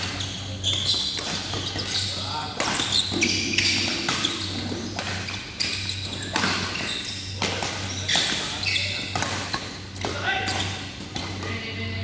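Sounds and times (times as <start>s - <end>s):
shoes squeaking on court: 0.0s - 11.6s
racket hitting shuttlecock: 6.2s - 8.5s.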